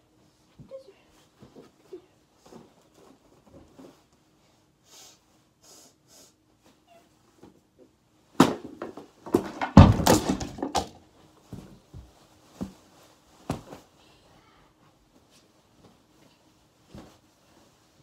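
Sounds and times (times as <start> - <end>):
tray table crashing down: 8.4 - 11.0.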